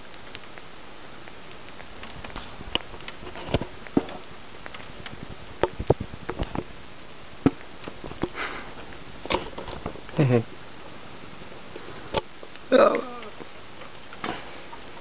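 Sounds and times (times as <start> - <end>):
small animal licking and eating: 0.0 - 6.8
steady hiss: 0.0 - 15.0.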